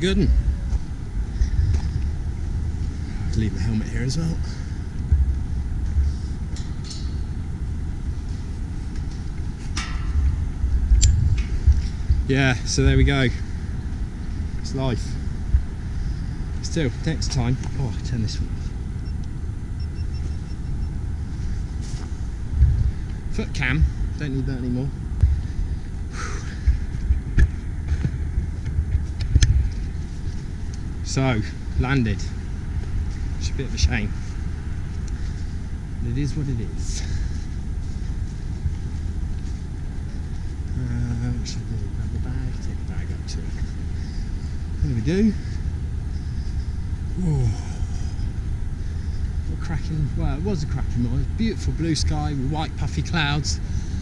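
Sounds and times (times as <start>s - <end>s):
wind buffeting microphone: 0.0s - 54.0s
footsteps: 0.6s - 3.0s, 21.3s - 23.2s.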